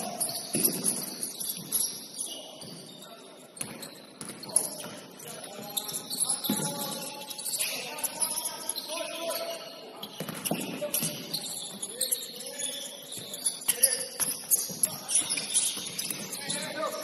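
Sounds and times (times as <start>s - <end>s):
basketball bouncing on court: 0.2s - 1.9s, 3.6s - 5.0s, 10.1s - 11.8s.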